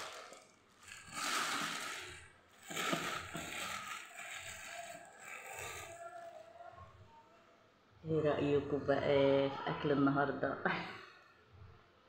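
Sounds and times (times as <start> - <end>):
plastic bag crinkling: 0.0 - 6.4.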